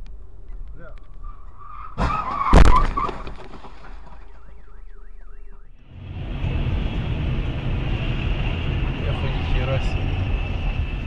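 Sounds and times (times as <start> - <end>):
car crash: 1.2 - 4.4
car alarm warbling: 4.2 - 5.8.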